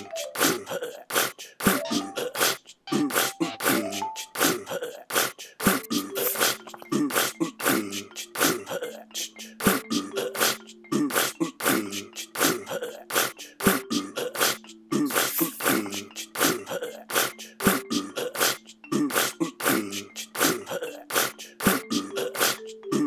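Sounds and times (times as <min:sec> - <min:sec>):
beatboxed mouth clicks: 0:00.4 - 0:23.0.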